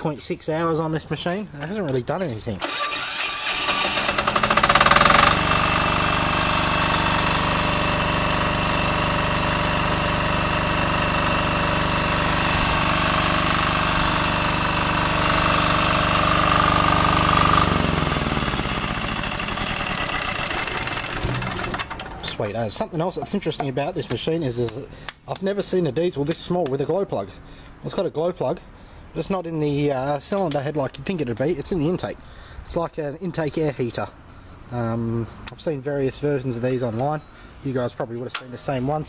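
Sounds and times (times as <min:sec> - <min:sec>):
diesel generator engine running: 0:02.6 - 0:25.2.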